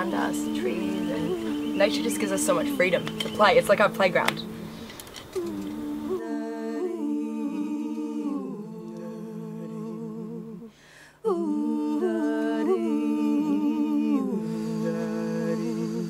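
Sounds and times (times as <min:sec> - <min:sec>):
women humming in harmony: 0:00.0 - 0:10.7.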